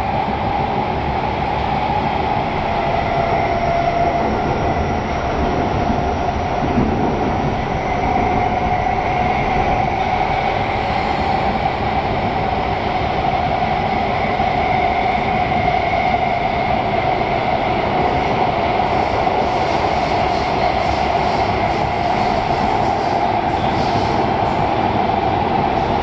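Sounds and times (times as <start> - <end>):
train wheels rumbling on track: 0.0 - 26.0.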